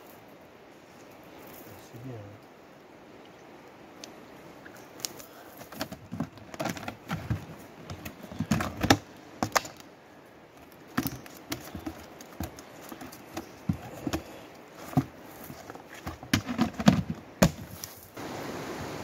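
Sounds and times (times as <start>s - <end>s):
fish flapping on gravelly dirt: 10.6s - 18.2s.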